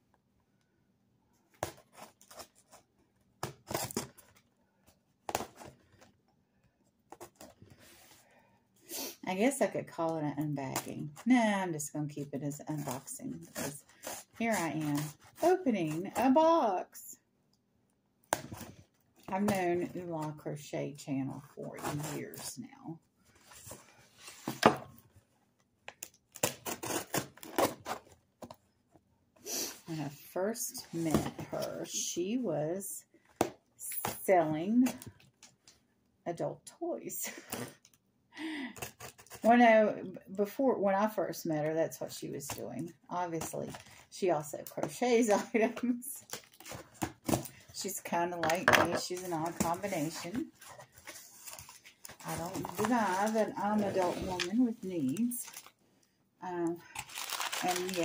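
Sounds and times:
cardboard rustling: 48.5 - 55.7, 57.0 - 58.0.

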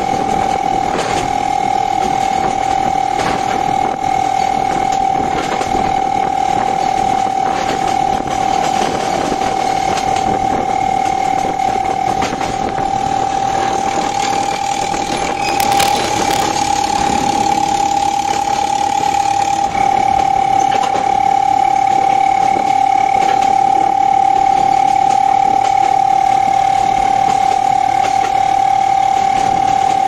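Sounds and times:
train running: 0.0 - 16.7
high-pitched whine: 15.3 - 16.8
clicks: 15.5 - 16.6.

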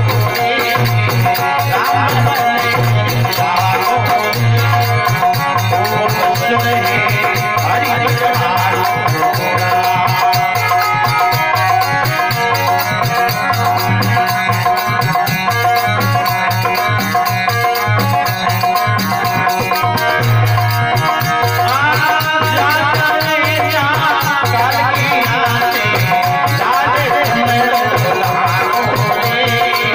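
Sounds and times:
hand drum beat: 0.0 - 29.9
harmonium chords: 0.0 - 29.9
high jingling rhythm: 0.0 - 29.9.

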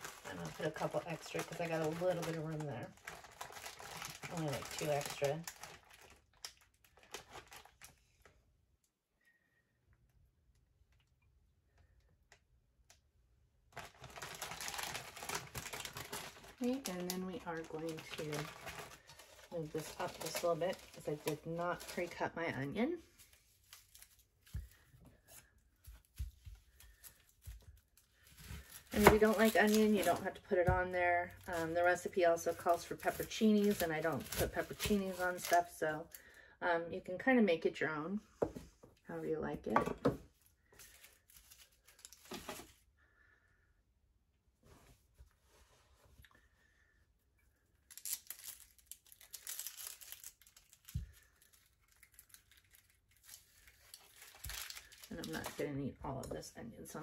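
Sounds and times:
onion skin crackling: 13.7 - 36.2, 47.8 - 55.6.

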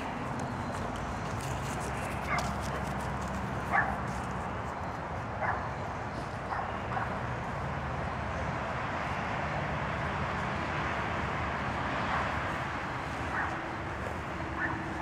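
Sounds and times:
steady background noise: 0.0 - 15.0
dog barking: 3.7 - 4.0, 5.4 - 5.7, 6.5 - 7.2, 13.3 - 13.6, 14.6 - 14.9.

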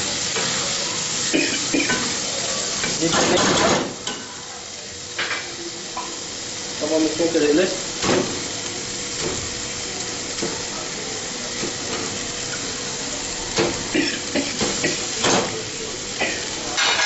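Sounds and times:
meat and oil sizzling in a pan: 0.0 - 17.0.

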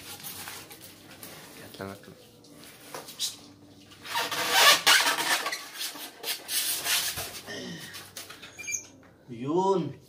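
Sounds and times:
foam scraping against metal frame: 4.0 - 7.4.

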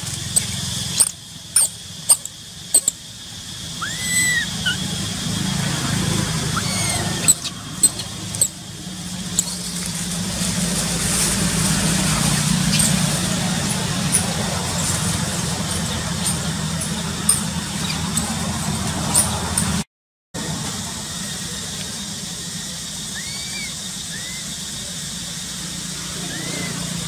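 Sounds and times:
high chirps and clicks: 0.0 - 3.0, 3.8 - 4.8, 6.4 - 8.6
vehicle engine hum: 0.0 - 27.0.

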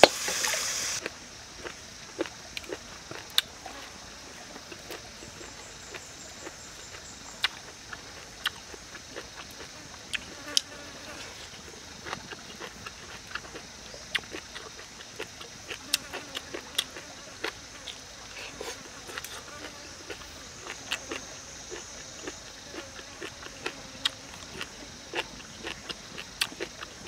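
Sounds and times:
chewing and chopsticks clicking: 12.0 - 18.0, 19.1 - 26.9.

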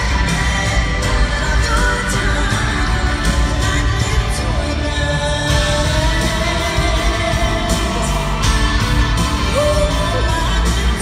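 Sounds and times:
heavy bass: 0.0 - 11.0
live country-pop band playing: 0.0 - 11.0
woman singing: 0.0 - 11.0.

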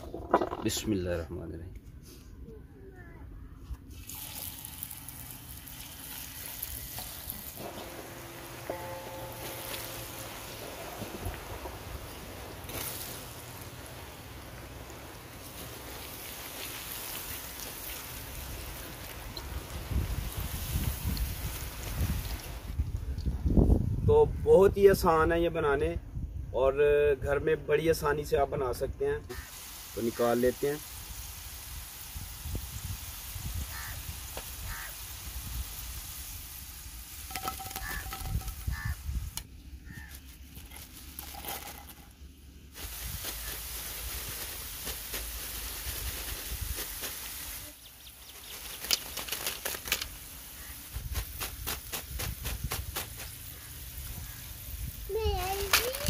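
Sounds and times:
fries sizzling in hot oil: 3.9 - 22.8, 29.3 - 39.4, 42.7 - 56.0
fries clicking into clay bowl: 37.3 - 39.5.

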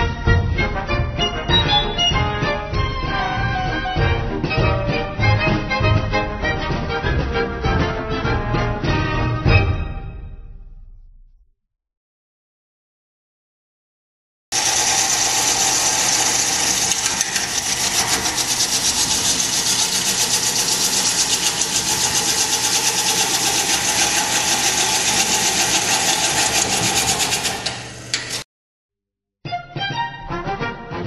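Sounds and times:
lathe motor hum: 14.5 - 28.4
gouge hissing on spinning wood: 14.6 - 28.4.

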